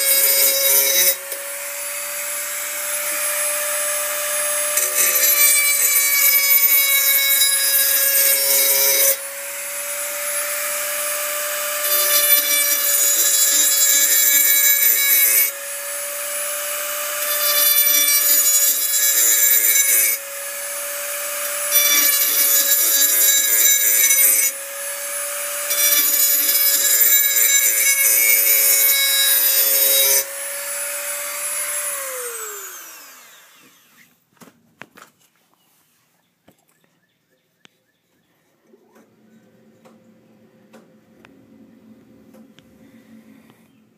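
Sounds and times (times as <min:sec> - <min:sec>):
rotary tool motor whining: 0:00.0 - 0:34.2
bit grinding against metal blade: 0:04.3 - 0:09.2, 0:11.4 - 0:15.6, 0:17.0 - 0:34.0.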